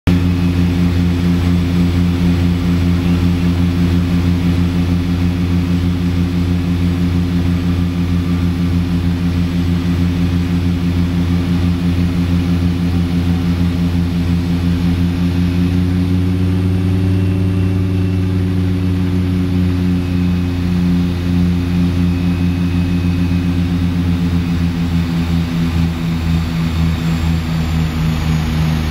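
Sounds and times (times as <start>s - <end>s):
propeller engine running: 0.0s - 28.9s.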